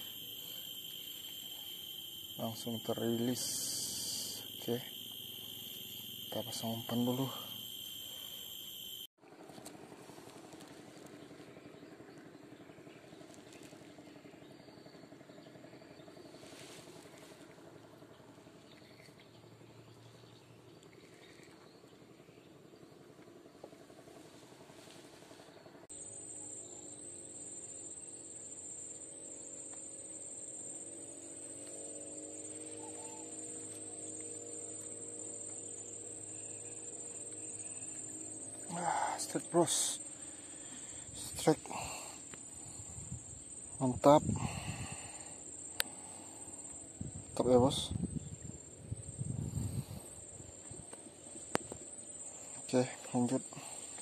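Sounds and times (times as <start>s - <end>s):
high-pitched insect drone: 0.0s - 9.1s, 25.9s - 54.0s
small boat engine running: 0.0s - 54.0s.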